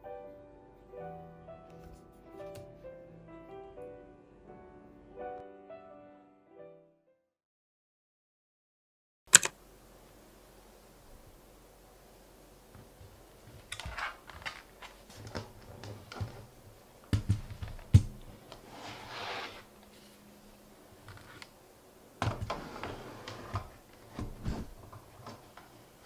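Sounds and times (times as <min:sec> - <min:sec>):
keyboard sliding on desk mat: 0:18.5 - 0:20.1, 0:22.3 - 0:25.7.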